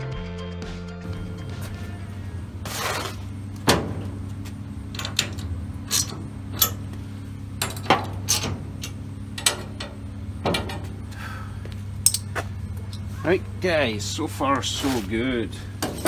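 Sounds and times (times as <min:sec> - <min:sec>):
steady low hum: 0:01.0 - 0:16.0.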